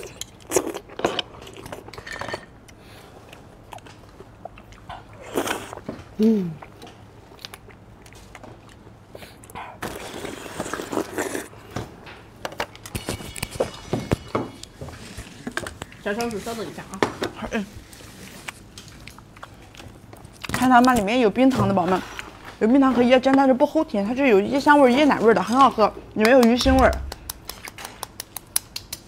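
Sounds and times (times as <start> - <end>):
slurping and chewing: 0.0 - 11.6
person humming mm: 6.2 - 6.7.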